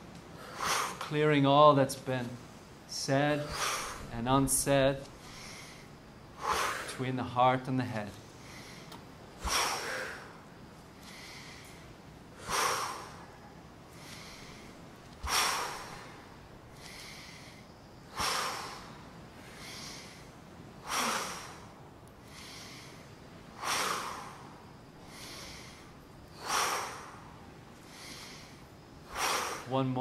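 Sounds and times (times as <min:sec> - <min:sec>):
soft inhale: 0:00.3 - 0:01.1, 0:03.4 - 0:04.2, 0:05.1 - 0:07.0, 0:08.2 - 0:29.7
group exhaling forcefully: 0:00.4 - 0:01.1, 0:03.4 - 0:04.1, 0:05.2 - 0:07.0, 0:08.4 - 0:10.4, 0:12.4 - 0:29.7.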